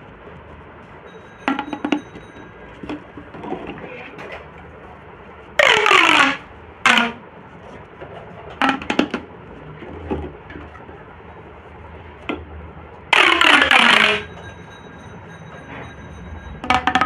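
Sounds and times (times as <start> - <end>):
pop tube zipping rasp: 5.6 - 7.2, 13.1 - 14.2.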